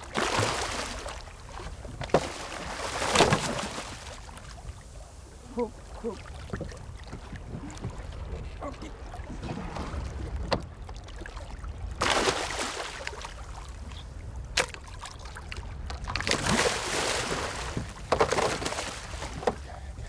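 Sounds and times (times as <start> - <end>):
fish thrashing and splashing: 0.0 - 1.3, 2.1 - 4.4, 12.0 - 13.2, 16.0 - 19.4.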